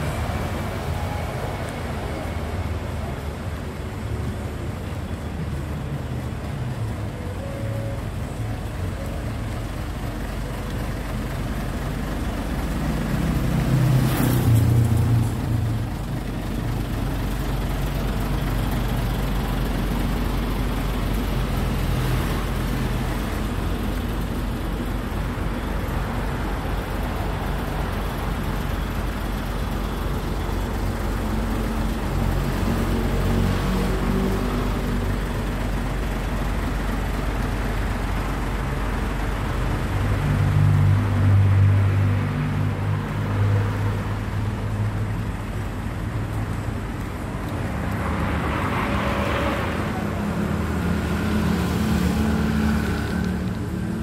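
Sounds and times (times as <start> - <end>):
diesel truck engine idling: 0.0 - 14.0, 15.0 - 33.4, 34.3 - 41.2.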